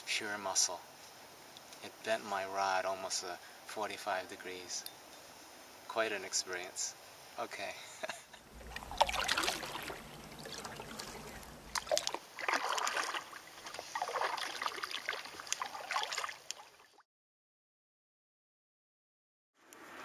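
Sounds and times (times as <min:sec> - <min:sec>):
paddle strokes in water: 0:08.5 - 0:17.0.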